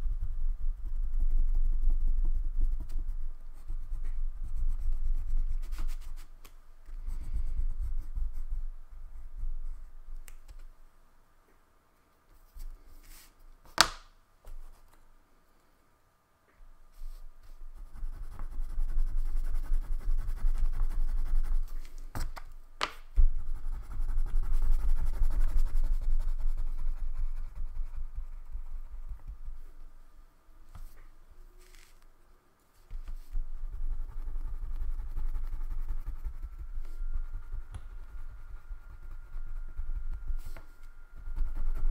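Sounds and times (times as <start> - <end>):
wax crayon scribbling on paper: 17.0 - 21.9, 23.2 - 29.7, 32.9 - 41.9.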